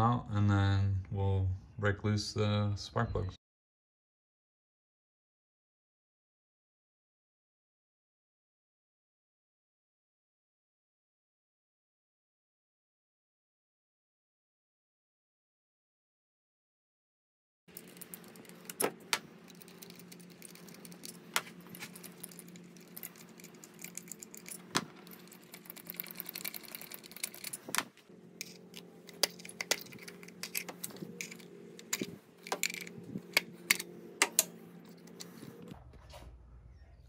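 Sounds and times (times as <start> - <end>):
metallic clicks and clinks: 17.7 - 18.9, 19.5 - 27.8, 28.4 - 35.2
steady low hum: 17.7 - 37.0.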